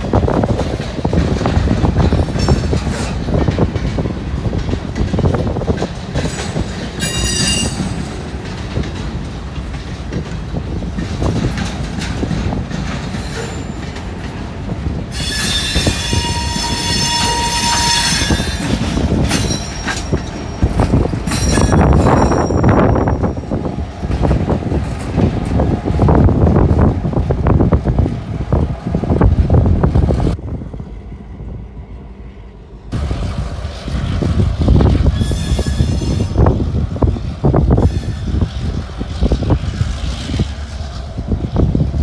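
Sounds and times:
diesel locomotive engine: 0.0s - 42.0s
train wheels rumbling on rail: 0.0s - 42.0s
high wheel squeal: 7.0s - 8.1s, 15.1s - 23.5s, 35.0s - 36.5s.

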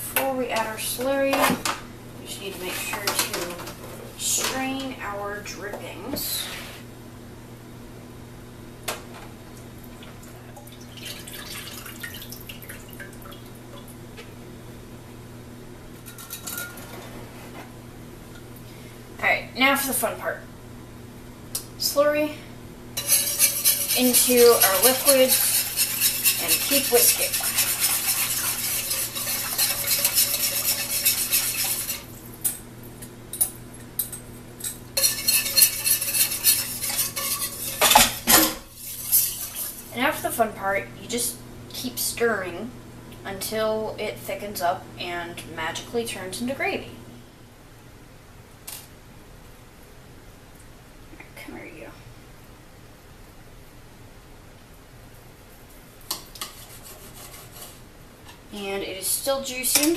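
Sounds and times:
liquid pouring and splashing: 10.6s - 13.5s
whisk scraping metal pan: 23.0s - 32.1s, 35.0s - 40.3s, 56.1s - 57.8s.

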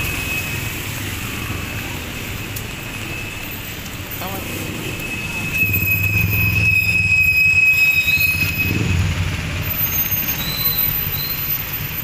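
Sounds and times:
passing cars and motorcycles: 0.0s - 12.0s.

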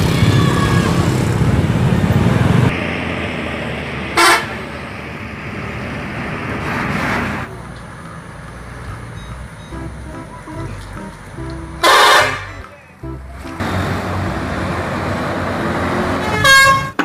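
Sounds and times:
bus engines rumbling: 0.0s - 17.0s
horn blast: 4.2s - 4.7s, 9.7s - 17.0s.

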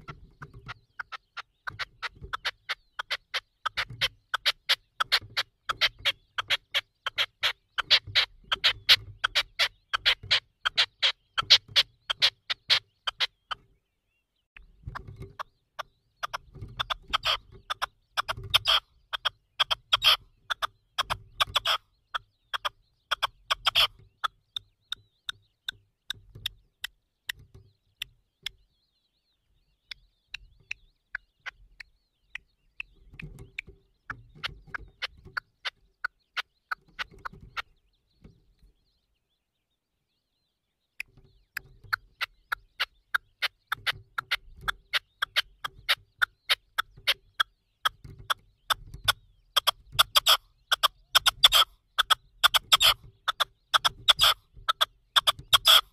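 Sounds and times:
partridge calling: 0.0s - 39.4s, 40.2s - 55.9s.

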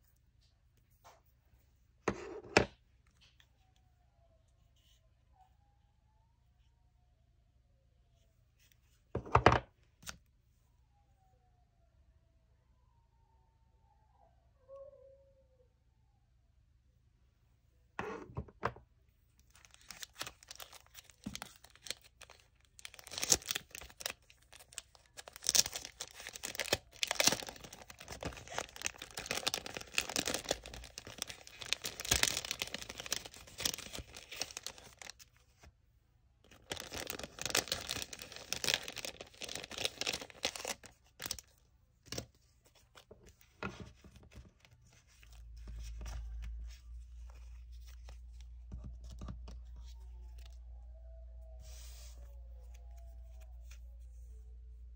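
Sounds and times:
plastic packaging crinkling: 19.5s - 35.3s, 36.5s - 46.6s.

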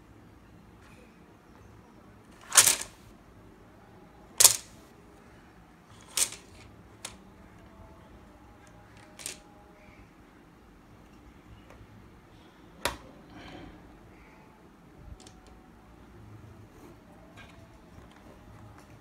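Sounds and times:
plastic pieces clattering on wood: 2.4s - 3.0s, 4.4s - 4.8s, 5.9s - 7.2s, 9.0s - 9.4s.

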